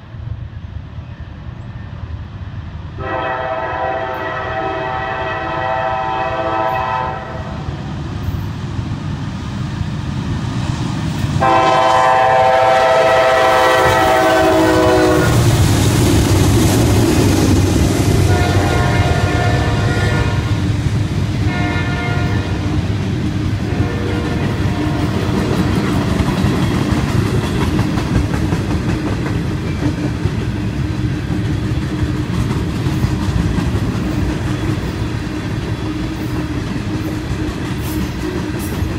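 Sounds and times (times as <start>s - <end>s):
diesel engine and wheels rumbling: 0.0s - 38.9s
locomotive air horn blasts: 3.0s - 7.6s, 11.4s - 15.5s, 18.2s - 20.6s, 21.4s - 22.6s, 23.6s - 25.2s.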